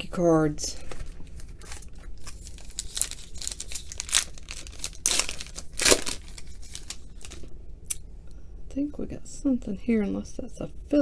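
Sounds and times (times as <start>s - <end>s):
wrapper crinkling: 0.9s - 7.5s
foil wrapper tearing open: 1.6s - 7.4s.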